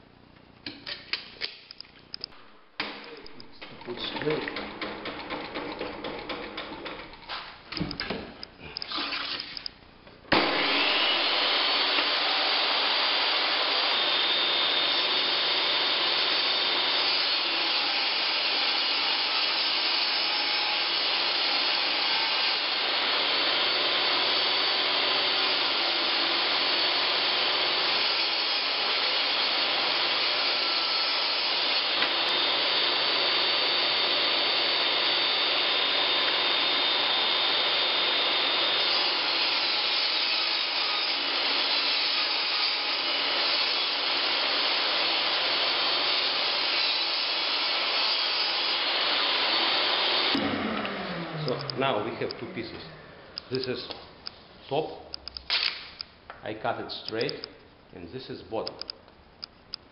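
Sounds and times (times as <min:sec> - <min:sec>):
shop vacuum running: 0:10.3 - 0:19.8, 0:20.7 - 0:42.4, 0:43.0 - 0:54.8
table saw ripping plank: 0:10.3 - 0:53.0, 0:55.5 - 0:56.0.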